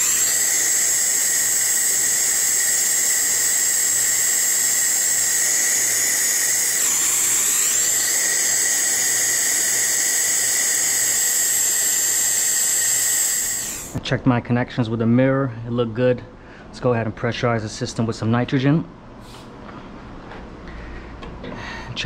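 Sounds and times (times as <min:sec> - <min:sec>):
torch hissing and whining: 0:00.0 - 0:14.0.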